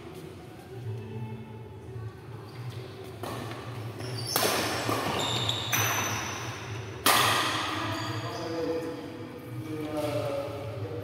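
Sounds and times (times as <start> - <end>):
racket hitting shuttlecock: 4.3 - 6.2, 7.0 - 7.8.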